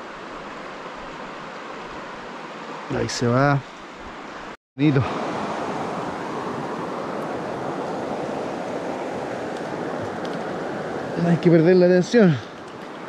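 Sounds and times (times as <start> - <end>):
river water rushing over rapids: 0.0 - 13.0.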